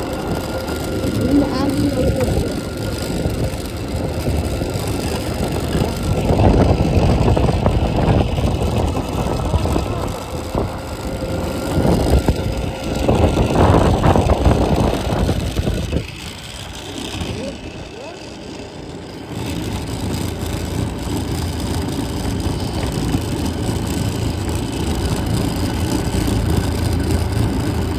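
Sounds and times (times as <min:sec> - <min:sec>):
faint steady whine: 0:00.0 - 0:27.9
plastic wheels rumbling on asphalt: 0:00.0 - 0:27.9.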